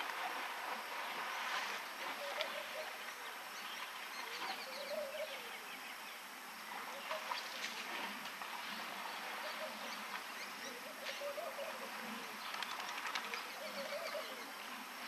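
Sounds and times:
steady background hiss: 0.0 - 15.0
warbling bird calls: 2.0 - 6.1, 9.1 - 14.7.

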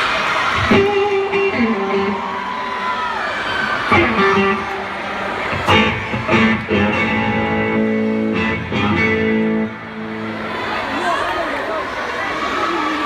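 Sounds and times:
guitar strumming chords: 0.6 - 2.4, 3.9 - 10.6.

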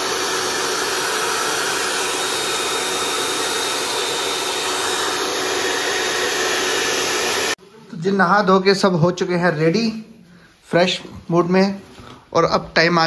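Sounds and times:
hair dryer running: 0.0 - 7.6.

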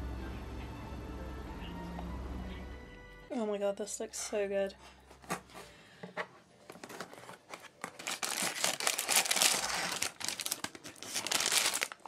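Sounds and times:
packaging crinkling and tearing: 6.7 - 12.0.

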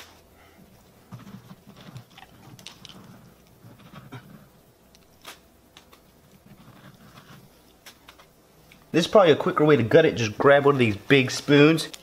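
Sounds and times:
dog chewing pumpkin crunches: 1.4 - 4.4.

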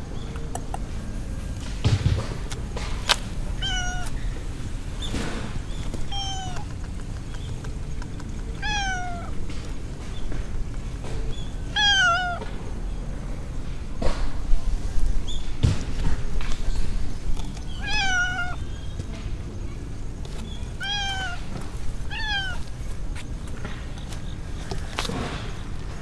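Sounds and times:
cat meowing: 3.6 - 4.2, 6.0 - 6.7, 8.6 - 9.4, 11.7 - 12.4, 17.7 - 18.7, 20.8 - 22.7.

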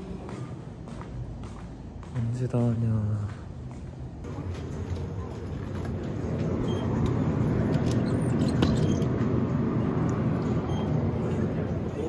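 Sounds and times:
drinks cooler low rumble: 4.2 - 12.0.

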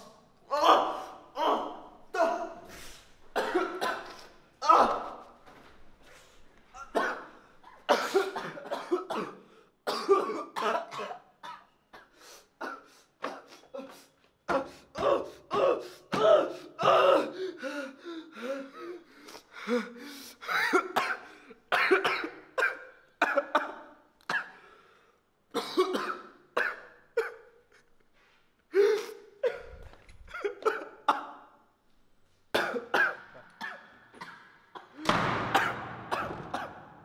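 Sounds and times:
young man sobbing: 13.5 - 21.0.

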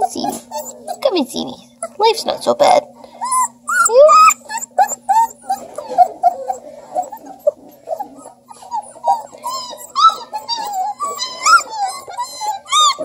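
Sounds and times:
puppies crying and whimpering: 0.0 - 2.2, 3.1 - 13.0.

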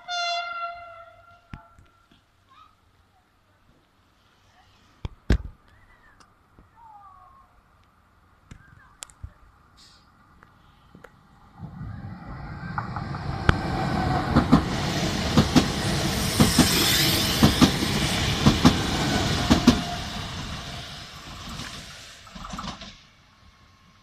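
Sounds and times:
train passing at speed: 9.8 - 24.0
wheels clacking over rail joints: 12.6 - 16.8, 17.4 - 20.0, 21.3 - 23.1.

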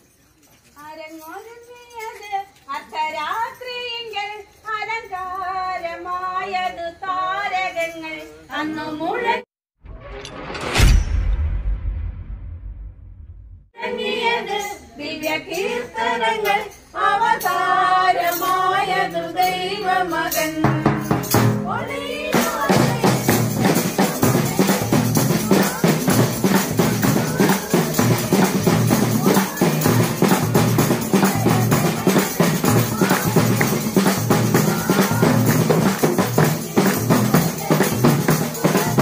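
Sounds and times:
people singing a carol: 4.7 - 9.5, 13.8 - 39.0
bass drum and percussion beat: 20.3 - 39.0.

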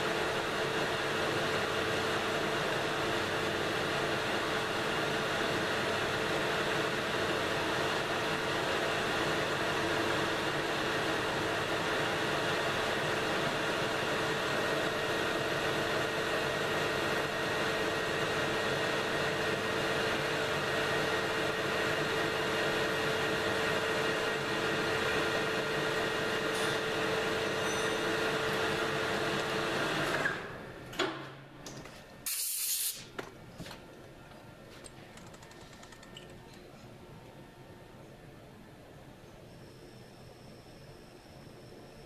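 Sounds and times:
short hiss: 32.2 - 33.1.

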